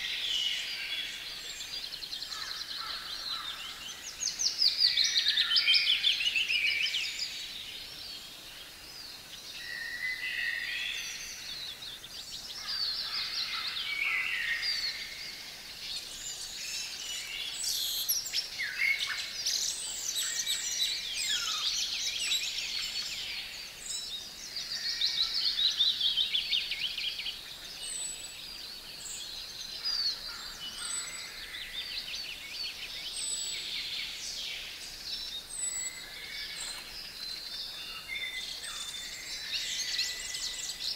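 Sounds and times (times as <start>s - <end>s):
songbirds singing: 0.0s - 40.9s.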